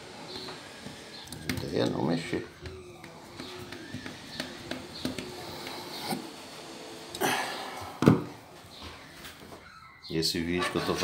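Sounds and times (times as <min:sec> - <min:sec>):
thump: 0:08.0 - 0:08.3.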